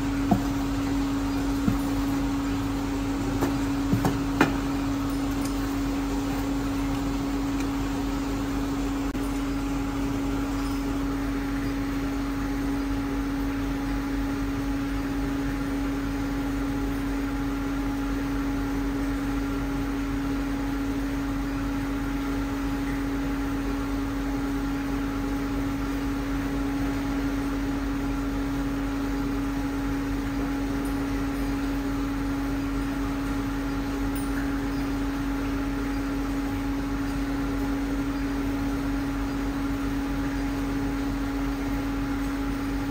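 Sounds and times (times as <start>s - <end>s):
furnace humming: 0.0s - 42.9s.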